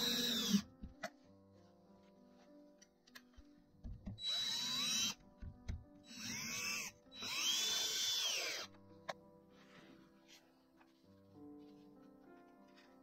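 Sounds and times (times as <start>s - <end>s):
cordless drill motor whining: 0.0s - 0.7s, 4.2s - 5.2s, 6.1s - 8.7s.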